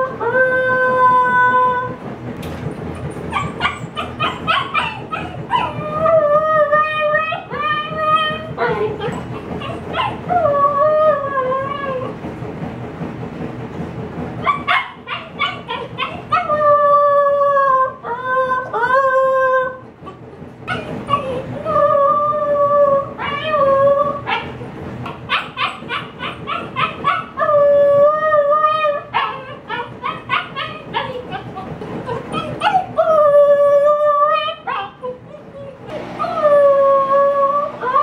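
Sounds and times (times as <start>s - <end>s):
puppy howling: 0.0s - 2.0s, 3.0s - 12.2s, 14.4s - 38.0s
puppy yipping: 3.0s - 5.9s, 8.1s - 10.4s, 14.4s - 16.6s, 20.0s - 21.4s, 24.3s - 27.6s, 28.9s - 33.2s, 34.3s - 36.5s.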